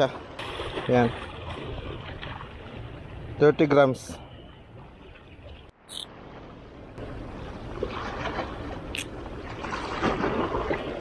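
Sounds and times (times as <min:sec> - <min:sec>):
wind: 0:00.0 - 0:11.0
sea water washing: 0:04.3 - 0:11.0.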